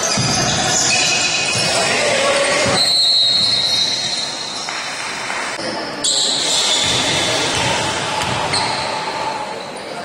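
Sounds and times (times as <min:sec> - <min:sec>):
basketball bouncing on court: 0:00.0 - 0:01.8, 0:06.7 - 0:08.9
basketball game noise: 0:00.0 - 0:10.0
high shoe squeal: 0:00.0 - 0:10.0.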